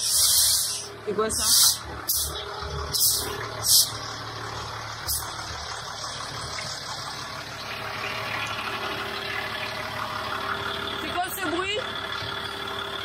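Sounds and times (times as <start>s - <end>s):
sharp hisses of escaping air: 0.0s - 2.3s, 3.0s - 3.9s
engine idling: 0.0s - 13.0s.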